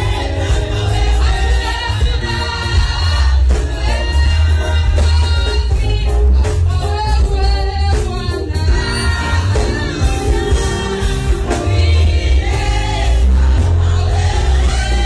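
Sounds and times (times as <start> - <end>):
amplified backing music with bass: 0.0 - 15.0
woman singing lead: 0.0 - 15.0
women's voices singing: 0.0 - 15.0.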